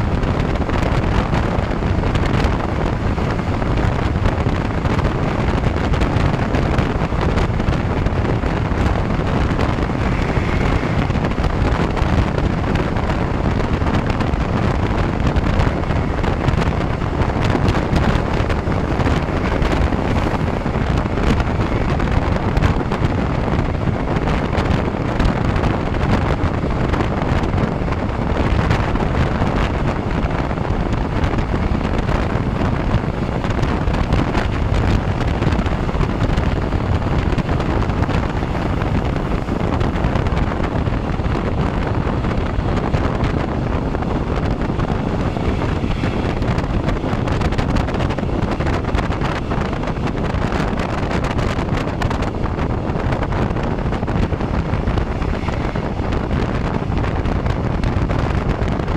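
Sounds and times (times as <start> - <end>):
train rumbling on track: 0.0 - 58.9
wind buffeting microphone: 0.0 - 58.9.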